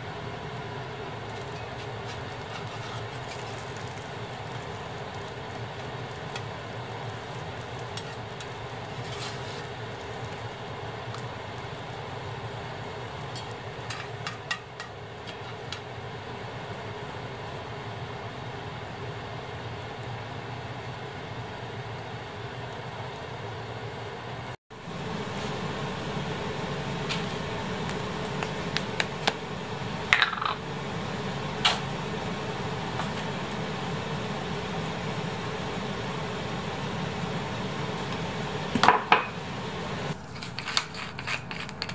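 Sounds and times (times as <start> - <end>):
egg sizzling in a pan: 0.0 - 41.9
fan-like hum: 0.0 - 41.9
metal spatula scraping a pan: 1.4 - 4.0, 7.9 - 9.7, 13.4 - 15.9.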